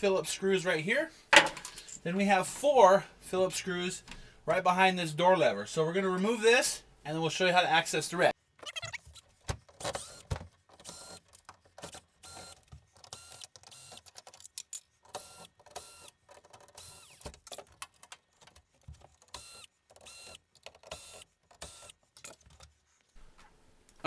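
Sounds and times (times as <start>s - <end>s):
cordless drill motor whine: 9.9s - 11.2s, 12.2s - 14.0s, 15.2s - 16.1s, 16.8s - 17.3s, 19.4s - 21.9s.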